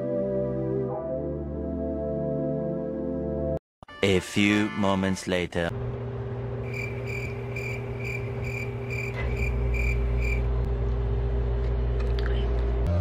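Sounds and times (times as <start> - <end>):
steady low hum: 5.7 - 13.0
cricket chirping: 6.6 - 10.5.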